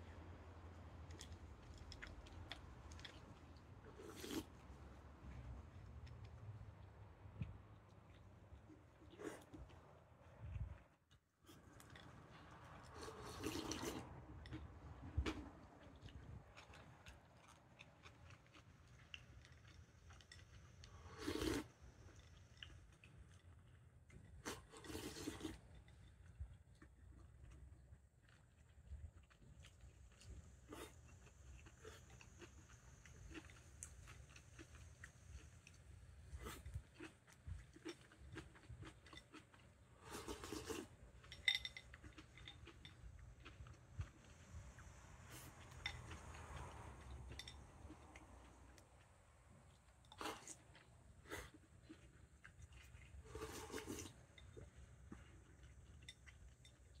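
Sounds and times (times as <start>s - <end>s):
chewing: 1.0s - 57.0s
person slurping: 13.0s - 14.1s, 24.5s - 25.6s, 53.2s - 54.1s.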